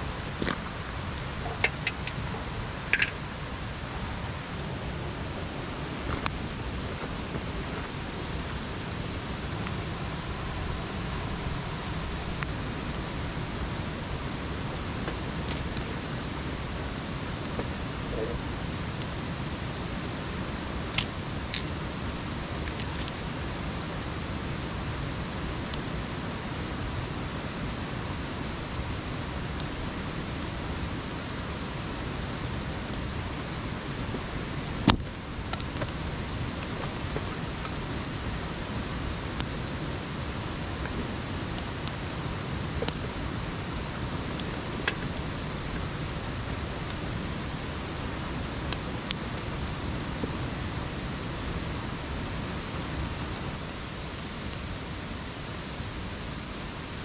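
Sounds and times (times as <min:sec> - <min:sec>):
steady rushing noise: 0:00.0 - 0:57.0
campfire wood snapping: 0:00.3 - 0:02.3, 0:02.9 - 0:03.2, 0:14.8 - 0:16.6, 0:17.2 - 0:24.1, 0:31.8 - 0:47.4.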